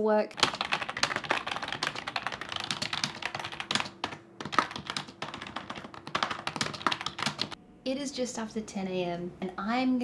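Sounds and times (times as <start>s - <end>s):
fast keyboard typing: 0.4s - 7.6s.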